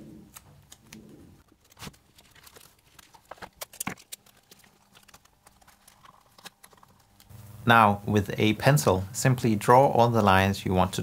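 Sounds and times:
paper and tape clicks and taps: 0.3s - 7.3s.

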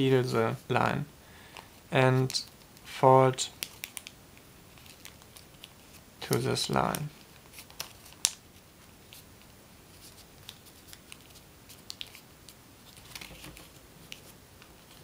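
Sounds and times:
paper crackling and rustling: 4.7s - 6.0s, 6.8s - 8.4s, 9.1s - 12.2s, 12.8s - 15.0s.

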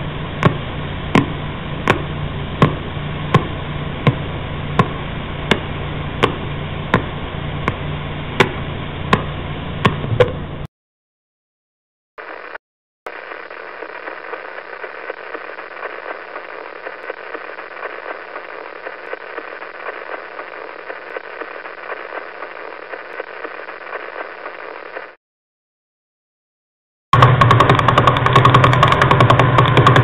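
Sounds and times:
faint steady hum: 0.0s - 10.7s, 12.2s - 25.2s
pulsing static hiss: 0.0s - 10.7s, 12.2s - 25.2s.

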